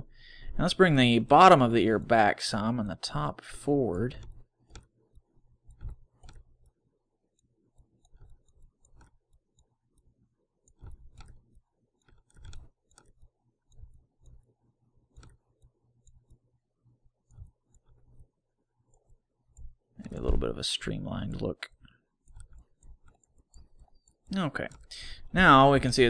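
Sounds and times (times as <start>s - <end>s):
computer mouse clicking: 4.1s - 6.8s, 7.4s - 16.5s, 17.2s - 19.8s, 21.3s - 24.9s.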